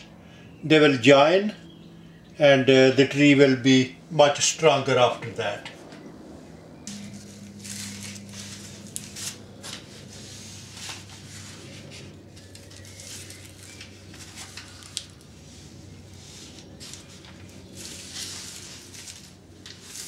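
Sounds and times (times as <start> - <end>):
steady low hum: 0.0 - 20.0
hands rustling and handling: 6.9 - 20.0.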